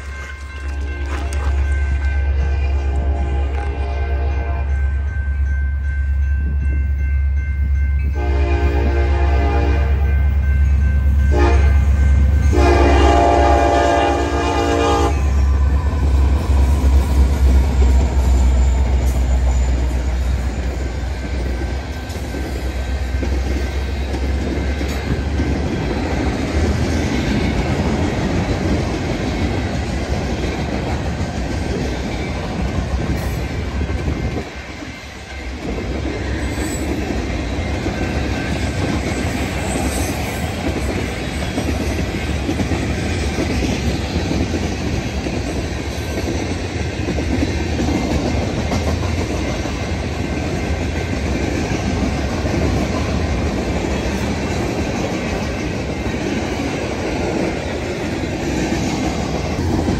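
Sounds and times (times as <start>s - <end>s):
train wheels clattering on rails: 0.0s - 3.8s, 5.1s - 59.9s
diesel locomotive engine rumble: 0.0s - 59.9s
train air horn blasts: 2.2s - 4.8s, 8.2s - 10.1s, 11.3s - 11.9s, 12.5s - 15.6s.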